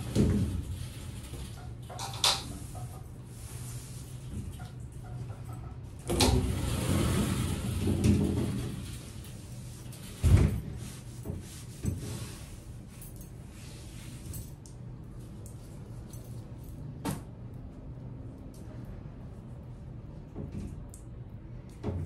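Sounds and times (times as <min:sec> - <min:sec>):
shower door sliding rumble: 0:06.0 - 0:12.5.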